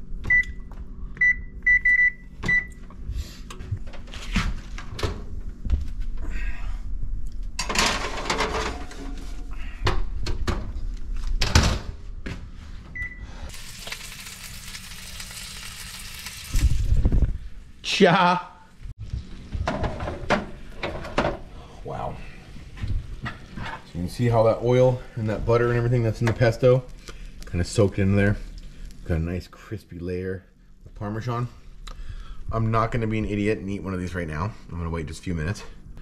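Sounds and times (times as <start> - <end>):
oven control panel beeps: 0.2 - 2.8
pans clattering: 7.6 - 9.2.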